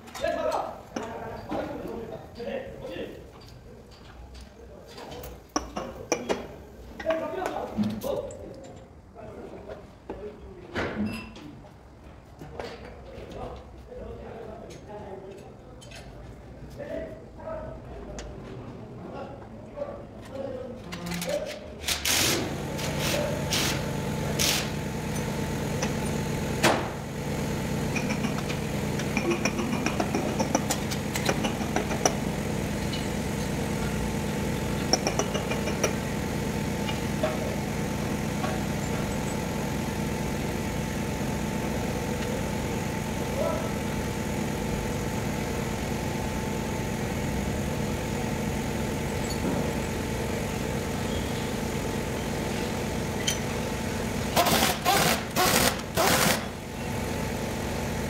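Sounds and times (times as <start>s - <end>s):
handheld power tool bursts: 21.8s - 41.0s, 54.2s - 56.7s
machine humming: 22.5s - 58.0s.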